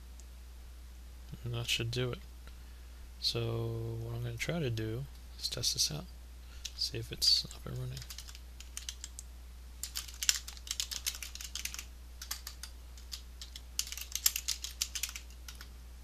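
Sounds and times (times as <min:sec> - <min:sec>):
typing on keyboard: 0:07.8 - 0:09.2, 0:09.8 - 0:15.7.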